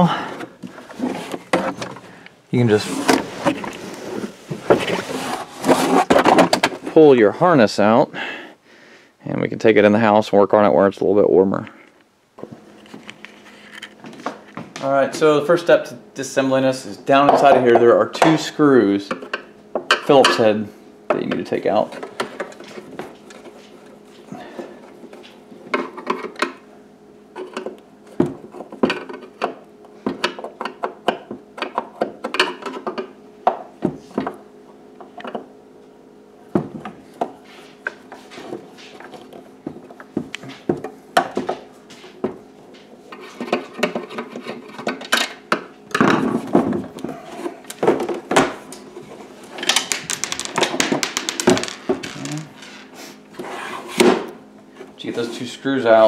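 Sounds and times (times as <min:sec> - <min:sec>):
plastic console scraping: 0:00.2 - 0:07.1, 0:51.4 - 0:54.1.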